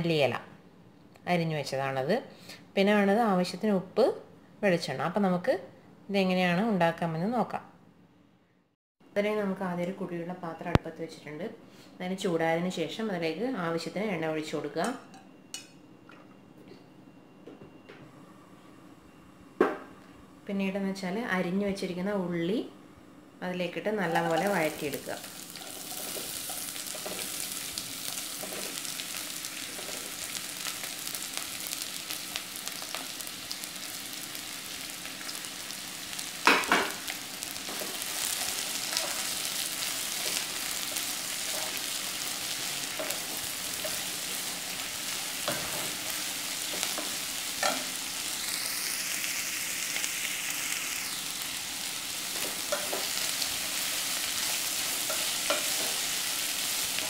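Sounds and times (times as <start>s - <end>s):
onions sizzling in oil: 23.7s - 57.0s.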